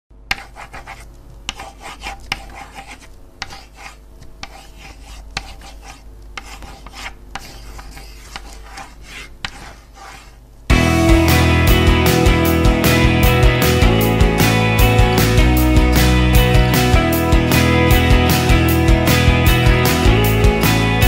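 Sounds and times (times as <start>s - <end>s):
pen scratching on paper: 0.3s - 10.4s.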